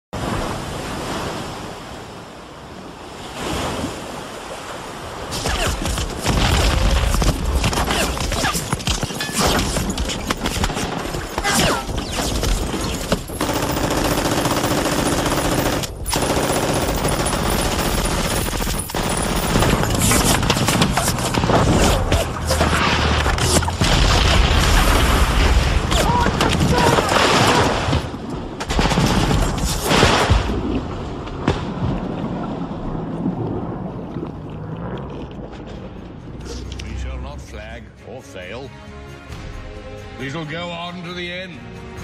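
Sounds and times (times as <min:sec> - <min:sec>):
gunfire bursts: 0:05.6 - 0:24.4
music: 0:36.5 - 0:42.0.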